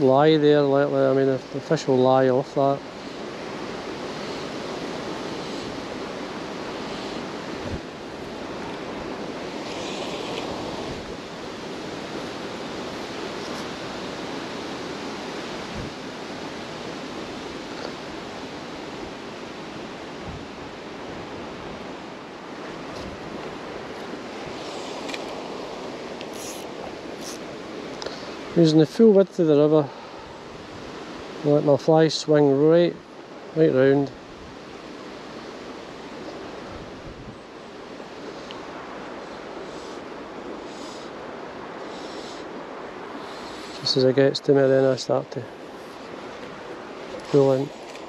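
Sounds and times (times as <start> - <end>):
fast-flowing river rushing: 0.0 - 48.0
wind on microphone: 2.8 - 28.6, 33.9 - 44.5.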